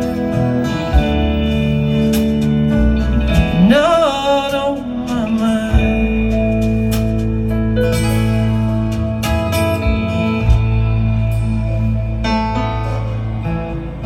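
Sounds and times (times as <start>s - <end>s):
acoustic guitar: 0.0s - 14.0s
drums: 0.0s - 14.0s
keyboard: 0.0s - 14.0s.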